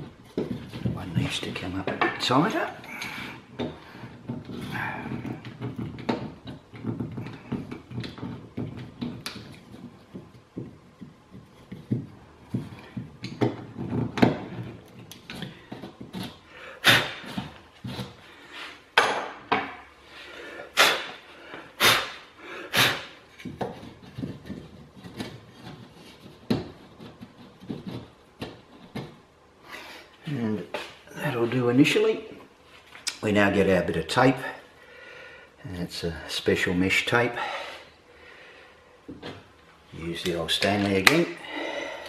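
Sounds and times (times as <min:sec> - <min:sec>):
knocks and clatters: 0:03.6 - 0:16.4.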